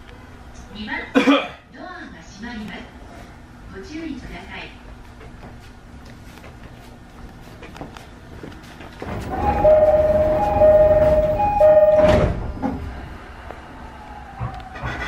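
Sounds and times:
sliding doors thumping shut: 9.0 - 12.9
two-note door chime: 9.3 - 12.3.

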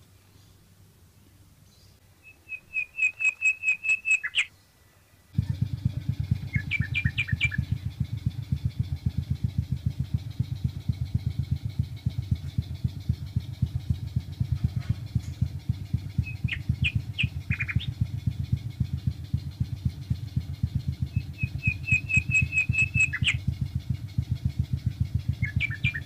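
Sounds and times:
bird chirping: 0.0 - 26.0
small engine puttering: 5.3 - 26.0.

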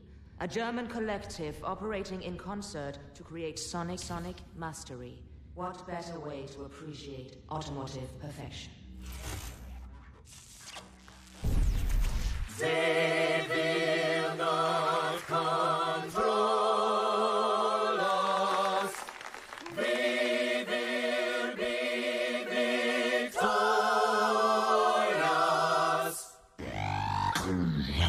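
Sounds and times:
choir singing in harmony: 12.5 - 26.4.

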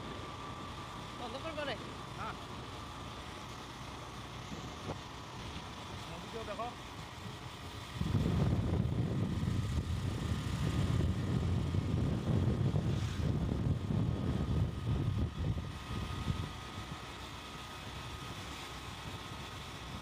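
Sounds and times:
motorcycle ride noise: 0.0 - 20.0
wind buffeting microphone: 7.7 - 17.0.

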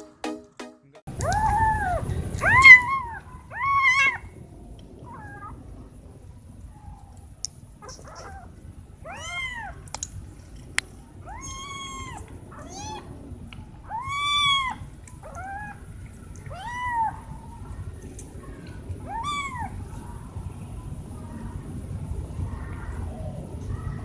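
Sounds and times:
cats meowing: 1.1 - 4.4, 7.8 - 9.9, 11.2 - 13.2, 13.9 - 17.5, 18.4 - 19.8.

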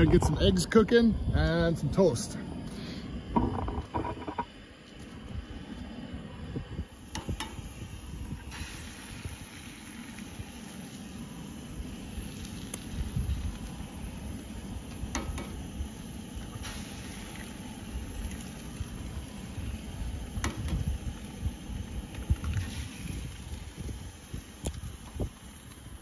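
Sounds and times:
low rumbling noise: 0.0 - 26.0
food sizzling: 6.9 - 26.0.

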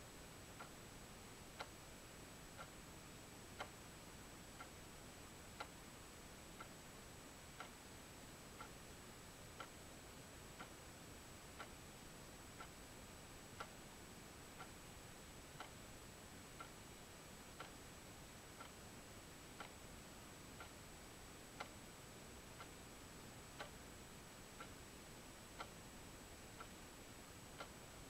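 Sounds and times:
low background hiss: 0.0 - 28.0
clock ticking: 15.6 - 15.8, 19.6 - 19.8, 20.6 - 20.8, 23.6 - 23.8, 25.6 - 25.8, 26.5 - 26.8, 27.5 - 27.9.

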